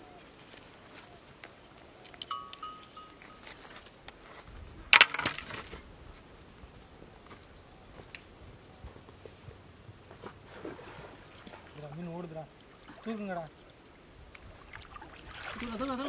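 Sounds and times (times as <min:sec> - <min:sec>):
short high chirps: 0:02.3 - 0:03.4.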